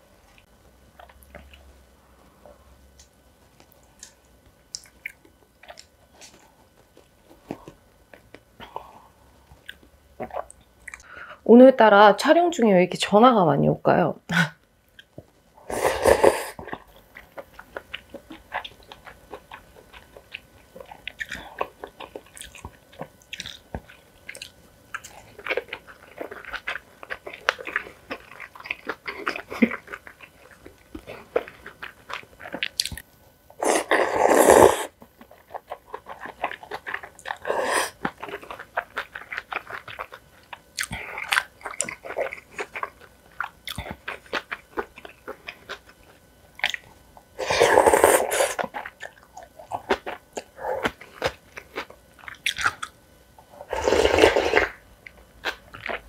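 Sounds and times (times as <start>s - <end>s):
person eating crisp food: 15.7s - 33.0s, 33.6s - 52.9s, 53.5s - 56.0s.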